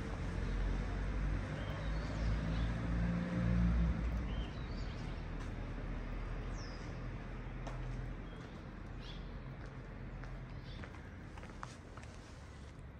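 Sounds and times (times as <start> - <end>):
vehicle engine hum: 0.0 - 12.9.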